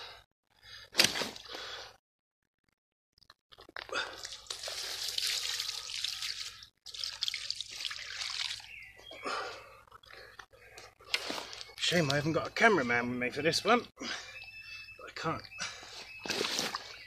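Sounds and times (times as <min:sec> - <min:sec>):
water splashing and dripping: 0:03.8 - 0:08.7.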